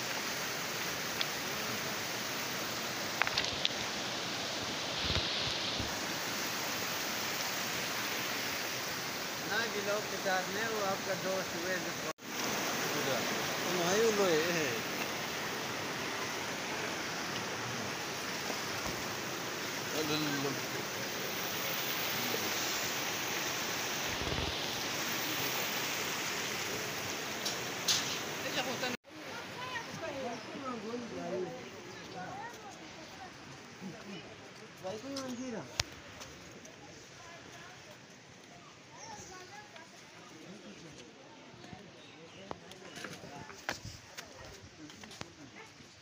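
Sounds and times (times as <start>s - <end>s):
flowing river water: 0.0s - 34.7s.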